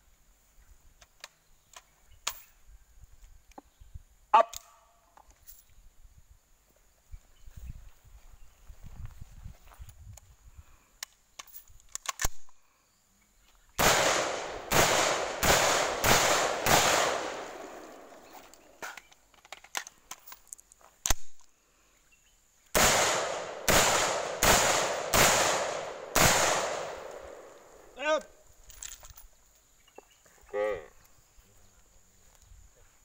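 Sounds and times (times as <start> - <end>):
rifle shots echoing: 13.8 - 18.4, 22.8 - 27.9
sharp crack: 13.8 - 19.1, 22.8 - 28.1.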